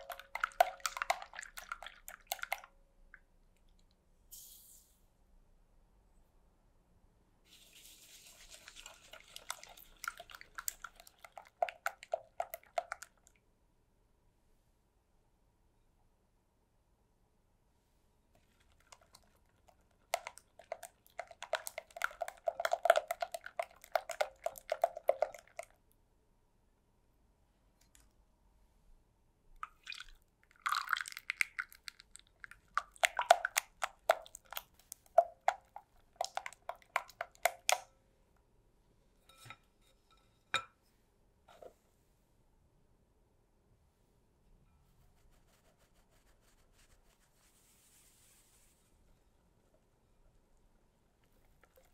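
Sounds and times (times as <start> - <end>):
whisk clicking in glass bowl: 0.0 - 2.6, 18.8 - 25.7.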